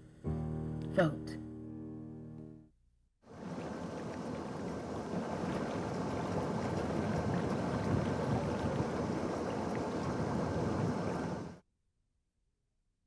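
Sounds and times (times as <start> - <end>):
water rushing: 3.3 - 11.6
wind: 3.3 - 11.6.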